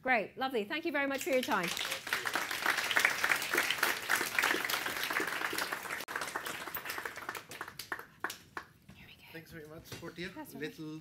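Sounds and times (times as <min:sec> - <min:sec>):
audience applauding: 0:01.2 - 0:08.7.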